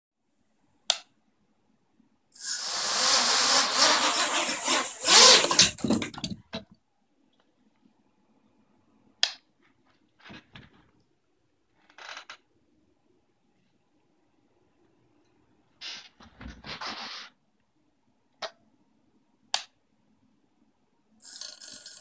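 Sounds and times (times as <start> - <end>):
quadcopter motors whining: 2.4 - 6.0.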